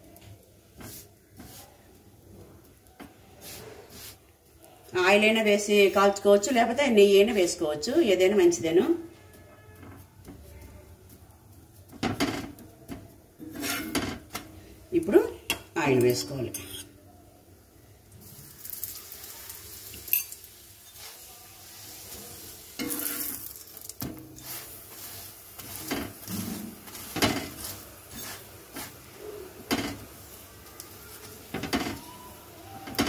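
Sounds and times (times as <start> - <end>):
oil sizzling on a griddle: 0.0 - 33.0
metal spatula scraping a pan: 11.9 - 14.7, 16.0 - 17.0, 19.8 - 32.2.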